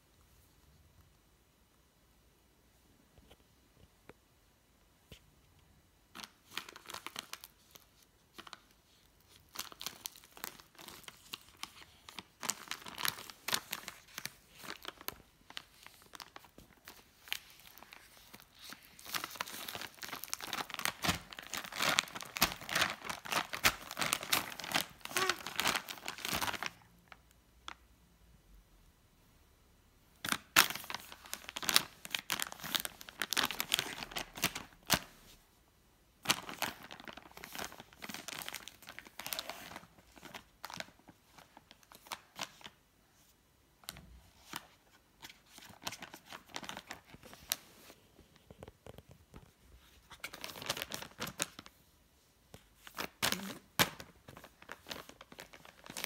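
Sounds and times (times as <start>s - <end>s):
plastic packet crinkling: 6.2s - 26.9s, 30.2s - 35.1s, 36.2s - 42.8s, 50.1s - 51.7s, 52.8s - 56.0s.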